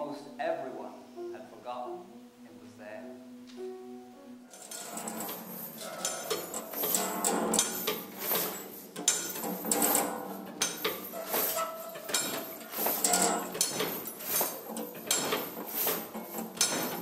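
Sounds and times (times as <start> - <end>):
metallic knocks and clanks: 4.5 - 17.0.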